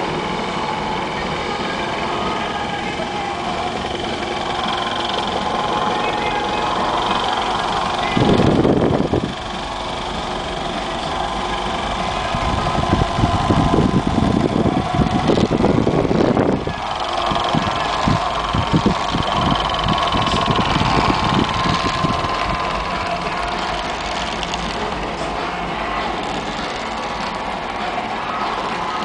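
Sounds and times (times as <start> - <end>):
throwing machine motor whine: 0.0 - 29.0.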